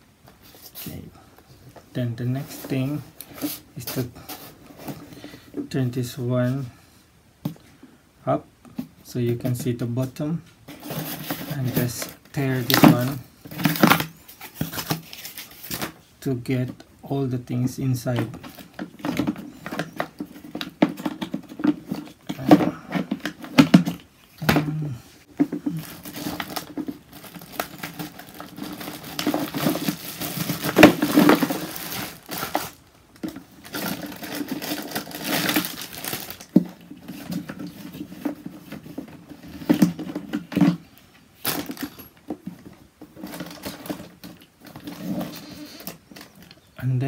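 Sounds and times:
plastic bag crinkling: 0:10.8 - 0:16.0, 0:25.3 - 0:40.8, 0:41.4 - 0:42.2.

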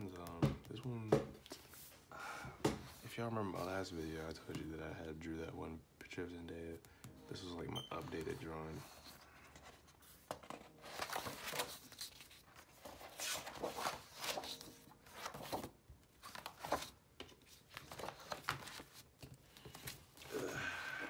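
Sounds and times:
pages turning: 0:07.1 - 0:20.9.

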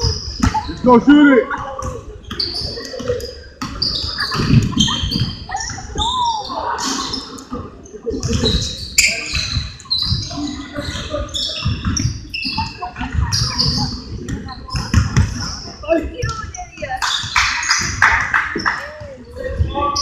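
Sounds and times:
sneakers squeaking: 0:00.0 - 0:20.0
voices: 0:00.0 - 0:20.0
basketball bouncing: 0:11.6 - 0:15.6.

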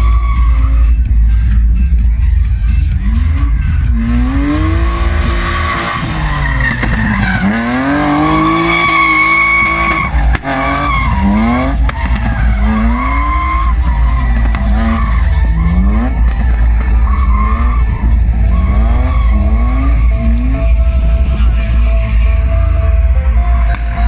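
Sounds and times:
tyres skidding: 0:00.0 - 0:24.0
car engine revving hard: 0:03.0 - 0:21.6.

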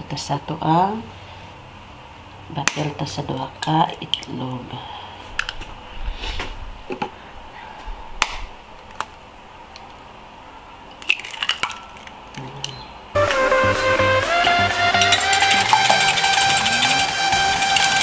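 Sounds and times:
eggshells cracking: 0:10.9 - 0:12.8
background music: 0:13.2 - 0:18.0.

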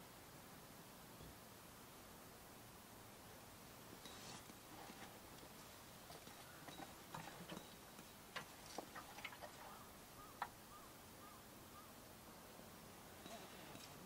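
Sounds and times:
faint chirps: 0:13.2 - 0:14.0.

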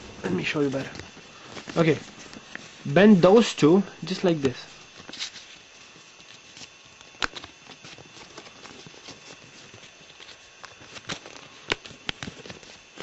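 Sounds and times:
paper rustling and crinkling: 0:00.0 - 0:13.0
sharp paper clicks: 0:04.1 - 0:13.0.

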